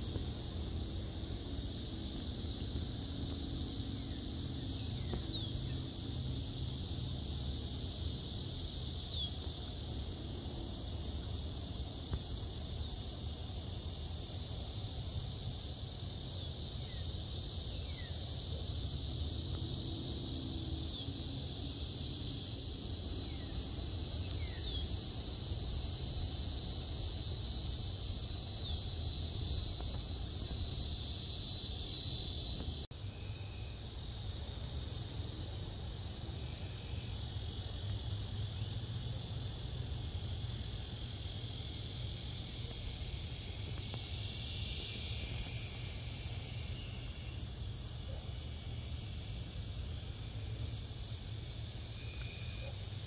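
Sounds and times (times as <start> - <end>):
insects buzzing: 0.0 - 53.0.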